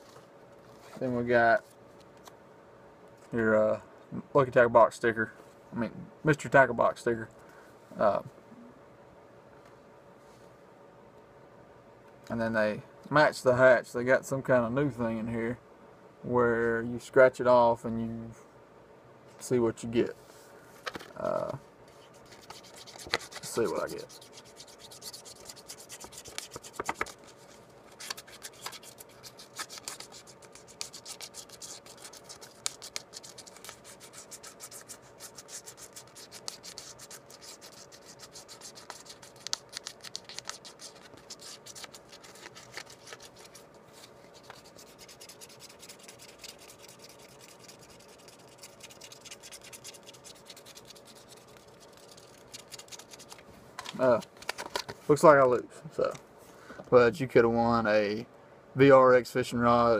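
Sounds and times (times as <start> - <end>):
scratch card scraping: 22.0 - 53.4.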